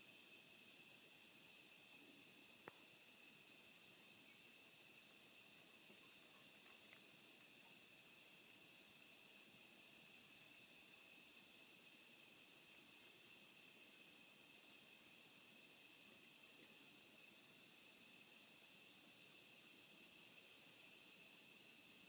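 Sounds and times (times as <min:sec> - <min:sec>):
faint high whine: 0:00.0 - 0:22.0
faint ticks: 0:02.5 - 0:03.0, 0:05.8 - 0:07.8, 0:12.6 - 0:13.2.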